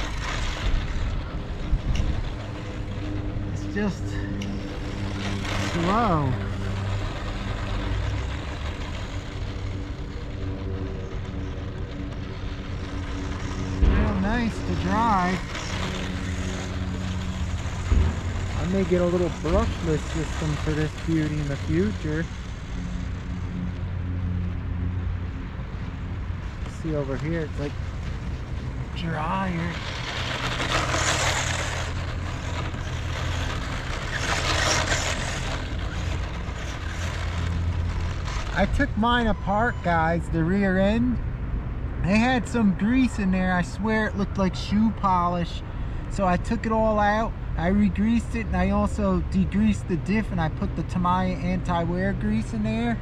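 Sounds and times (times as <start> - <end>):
tyres on dry dirt: 0.0 - 24.2, 26.4 - 41.0
electric motor whining: 0.0 - 40.5
wind rumbling on microphone: 0.0 - 41.9.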